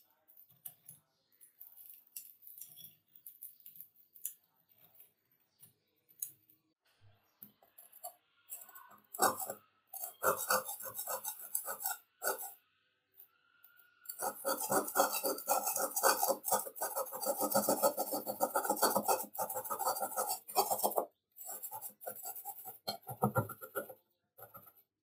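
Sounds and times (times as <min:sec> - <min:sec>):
screwdriver scraping cement off metal: 0:09.2 - 0:12.5, 0:14.1 - 0:23.9.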